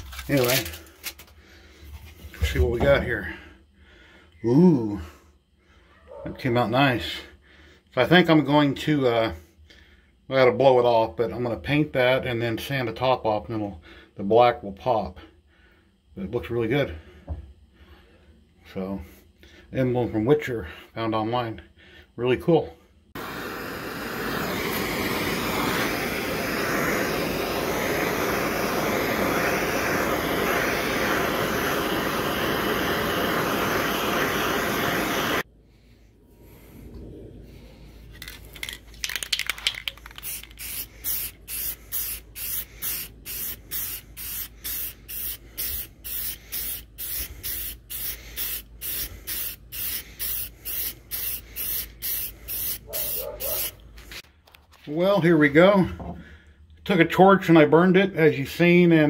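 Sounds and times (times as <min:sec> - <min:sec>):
aerosol can spraying: 0:23.2 - 0:35.4, 0:38.2 - 0:54.2.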